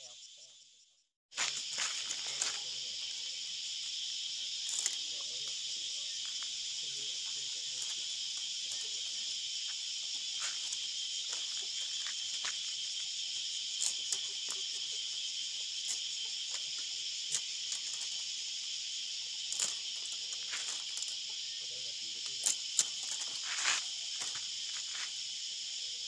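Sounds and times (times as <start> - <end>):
insect chorus: 0.0 - 26.0
bamboo strips clicking and rattling: 4.6 - 5.0, 13.7 - 14.8, 15.8 - 18.3, 19.4 - 21.3, 22.2 - 24.4.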